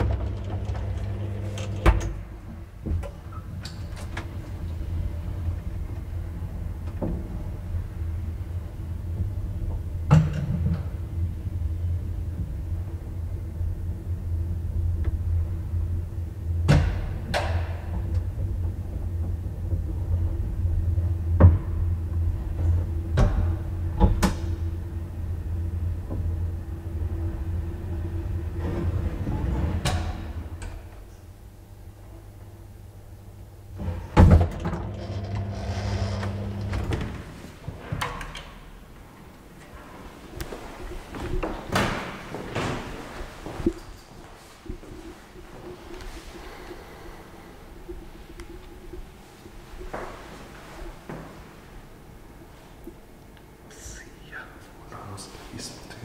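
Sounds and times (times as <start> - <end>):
elevator clunks and clicks: 0.0 - 7.8, 9.1 - 11.2, 16.6 - 26.5
elevator drive humming: 0.0 - 53.8.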